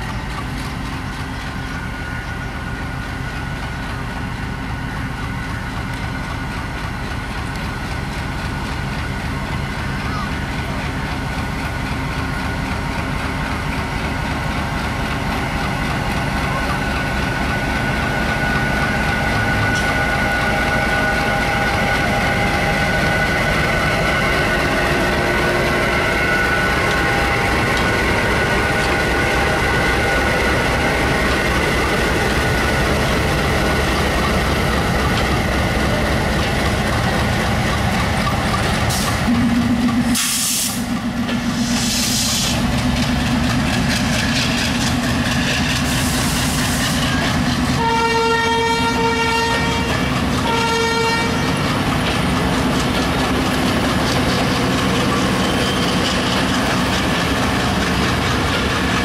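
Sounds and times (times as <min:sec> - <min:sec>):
diesel locomotive engine: 0:00.0 - 0:59.0
train coaches rolling: 0:00.0 - 0:59.0
loud bursts of hiss: 0:40.2 - 0:40.9, 0:41.6 - 0:42.6, 0:45.9 - 0:47.0.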